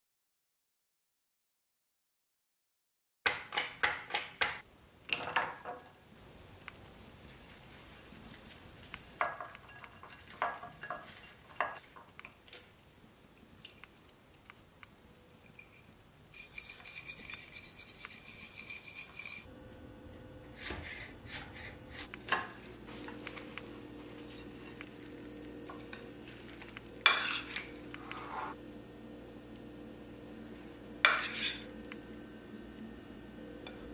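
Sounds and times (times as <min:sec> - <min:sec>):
cutlery clinking on ceramic bowls: 0:09.2 - 0:11.8, 0:15.4 - 0:19.5, 0:25.7 - 0:27.7, 0:31.0 - 0:31.7
fork whisking dressing: 0:16.4 - 0:19.5.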